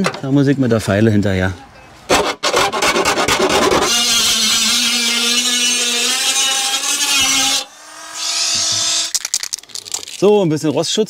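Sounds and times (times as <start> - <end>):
rotary tool grinding sheet metal: 2.1 - 9.1.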